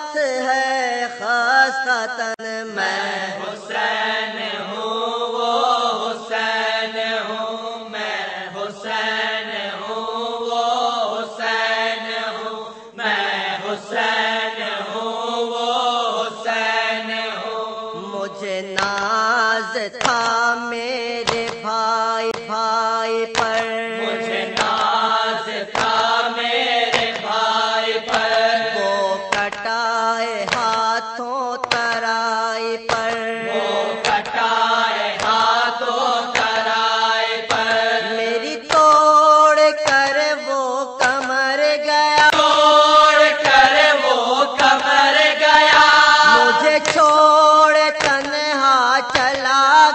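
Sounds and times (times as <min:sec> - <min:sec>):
voices chanting an elegy: 0:23.4 - 0:29.6, 0:32.9 - 0:38.8, 0:42.2 - 0:47.9
sharp beats keeping time: 0:45.7 - 0:47.0.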